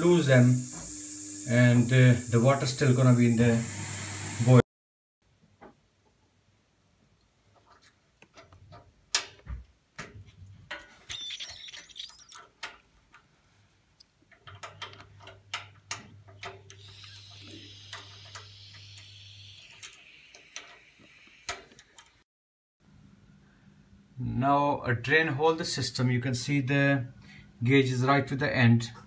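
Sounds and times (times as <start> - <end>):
air hissing from valve: 0.0 - 4.6, 16.8 - 22.2.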